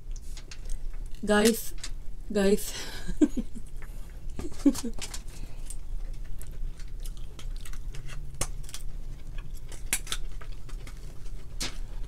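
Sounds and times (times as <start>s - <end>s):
low steady hum: 0.0s - 12.0s
scissors cracking crab shells: 6.8s - 11.0s.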